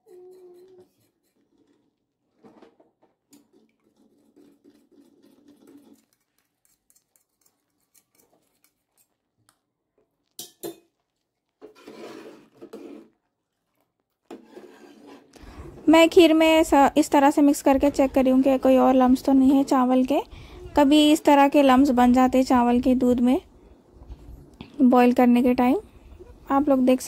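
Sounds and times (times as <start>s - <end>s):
spoon scraping cooking pot: 0.0s - 2.0s, 3.3s - 9.1s, 11.6s - 13.2s, 14.3s - 15.4s.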